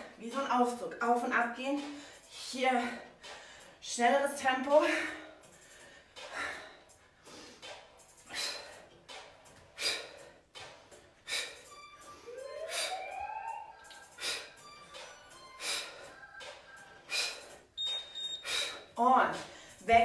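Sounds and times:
woman breathing hard: 1.8s - 3.8s, 4.9s - 13.2s, 13.9s - 19.8s
rising tone: 11.9s - 15.6s.

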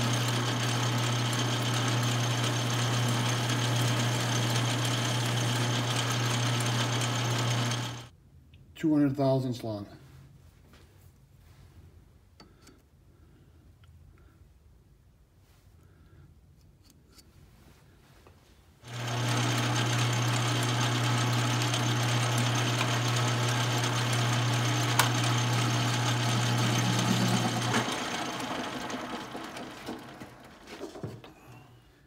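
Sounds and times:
lathe chuck spinning down: 0.0s - 8.1s, 18.9s - 31.6s
lathe motor humming: 0.0s - 8.1s, 18.9s - 31.6s.

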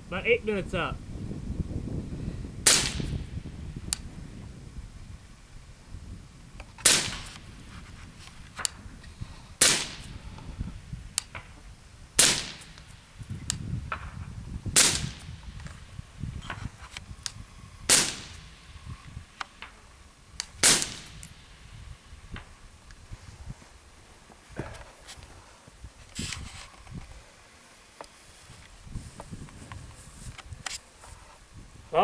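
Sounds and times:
suppressed rifle shots: 2.6s - 3.2s, 6.8s - 7.4s, 9.6s - 10.2s, 12.2s - 12.8s, 14.7s - 15.4s, 17.9s - 18.6s, 20.6s - 21.4s.

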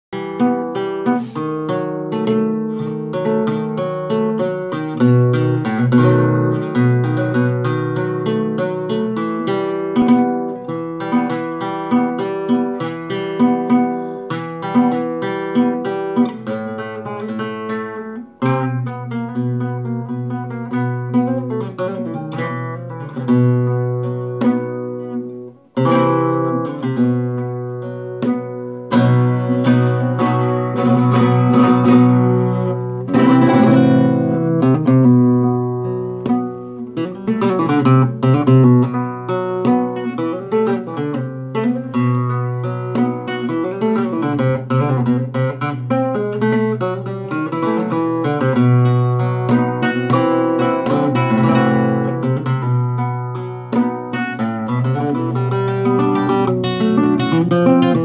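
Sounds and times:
flamenco guitar playing: 0.0s - 58.0s.

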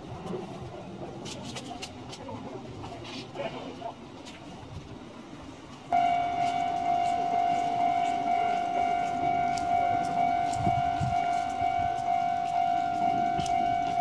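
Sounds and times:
level crossing warning bell: 5.9s - 14.0s.

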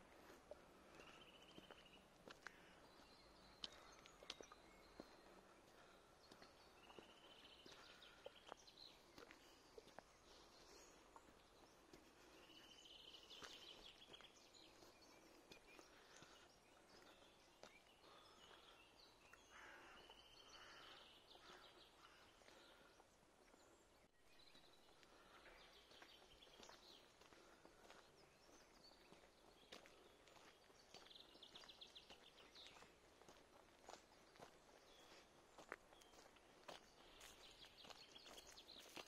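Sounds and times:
footsteps on a path: 0.0s - 39.0s
songbird trills and chirps: 23.4s - 39.0s.

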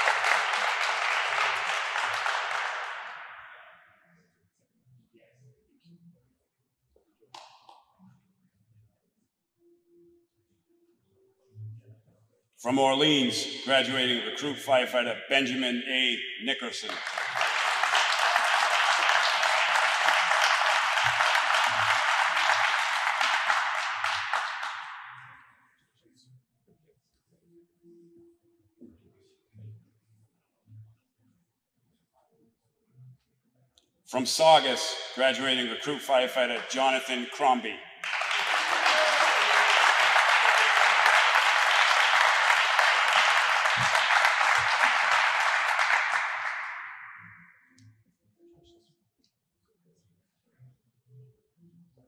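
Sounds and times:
audience applauding: 0.0s - 3.6s, 15.9s - 25.4s, 34.2s - 47.4s.

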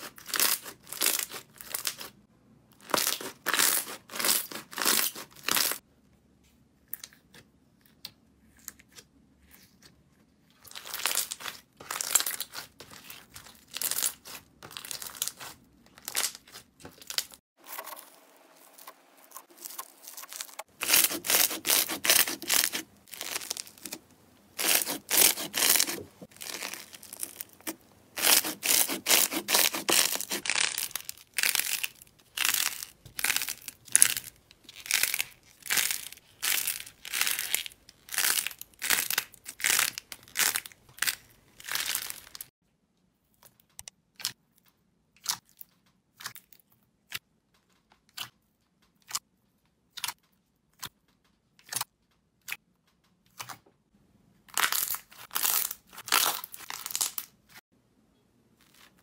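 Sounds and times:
wet slime squishes: 6.8s - 42.5s, 44.1s - 53.7s.

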